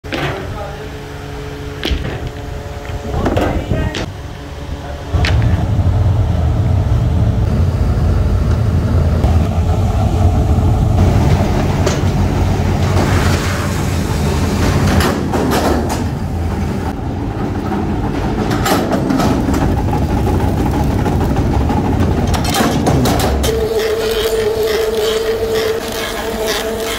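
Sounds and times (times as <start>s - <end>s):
heavy machinery rumbling: 0.0s - 26.9s.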